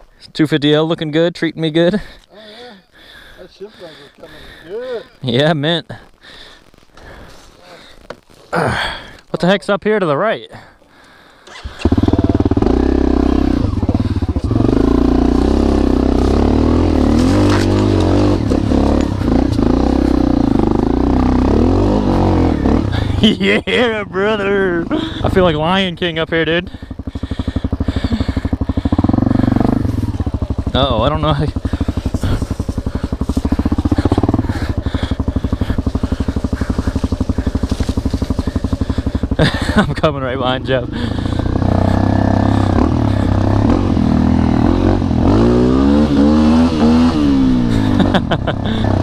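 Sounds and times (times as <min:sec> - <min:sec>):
dirt bike engine revving: 0:11.5 - 0:49.0.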